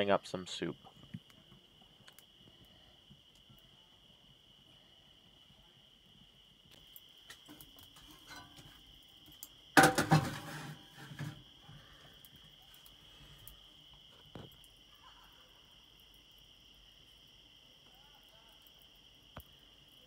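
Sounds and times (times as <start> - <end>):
crickets chirping: 0.0 - 20.0
skillet clanking on stove: 9.8 - 11.4.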